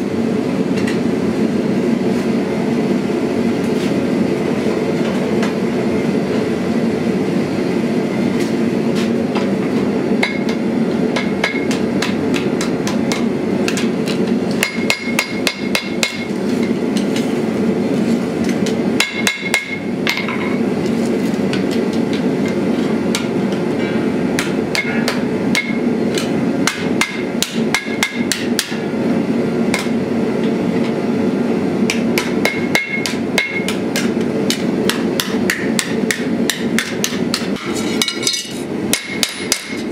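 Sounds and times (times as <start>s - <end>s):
hammer striking hot steel on anvil: 9.3s - 17.3s, 18.4s - 20.6s, 21.5s - 28.9s, 29.7s - 31.0s, 31.9s - 39.9s.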